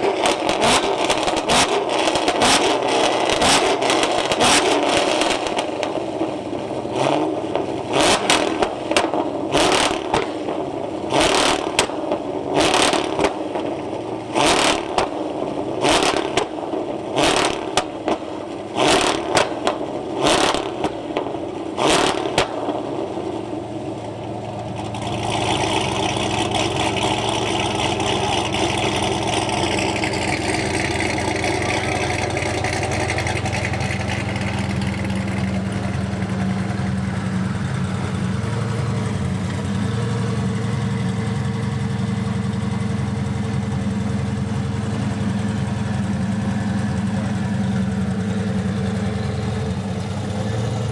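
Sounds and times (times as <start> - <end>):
sharp exhaust cracks: 0.0 - 39.4
car engine rough idle: 0.0 - 50.9.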